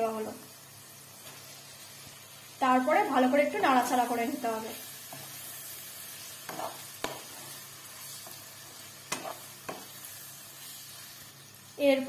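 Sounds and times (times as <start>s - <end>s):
food sizzling in oil in a wok: 0.0s - 12.0s
spatula scraping and tapping a pan: 5.0s - 5.5s, 6.2s - 10.8s.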